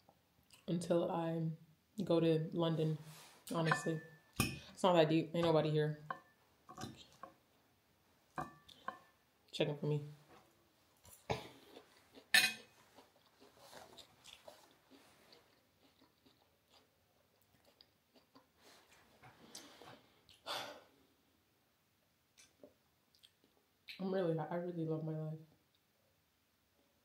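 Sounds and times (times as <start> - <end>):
person chewing food: 11.0 - 20.4, 22.4 - 23.7.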